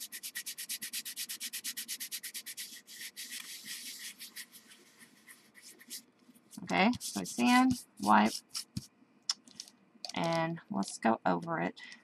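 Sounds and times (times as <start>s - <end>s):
cardstock being sanded: 0.0s - 8.9s.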